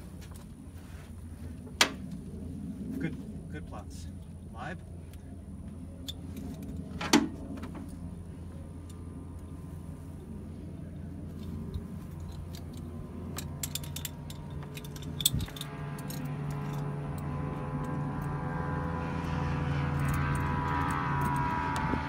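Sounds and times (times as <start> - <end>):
low steady hum: 0.0 - 22.0
helicopter turbine engine whine: 0.1 - 22.0
metallic clicks and jingling: 11.3 - 18.4, 19.9 - 21.5.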